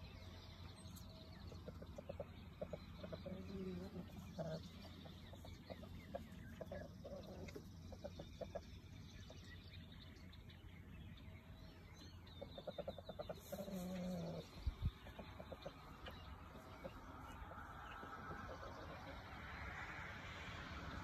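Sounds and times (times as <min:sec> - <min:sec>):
chicken clucking: 0:01.4 - 0:09.5, 0:12.4 - 0:19.2.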